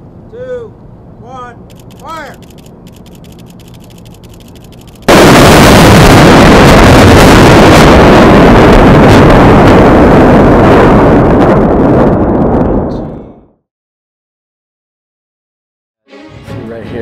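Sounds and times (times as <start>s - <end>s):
sharp cracks: 1.7s - 8.4s
demolition charges blast: 4.7s - 12.9s
loud roar of collapse: 5.1s - 13.5s.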